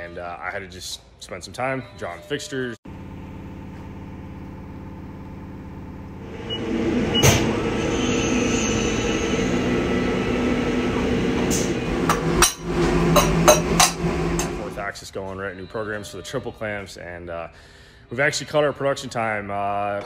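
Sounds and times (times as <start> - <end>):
milling machine hum: 9.3 - 14.8.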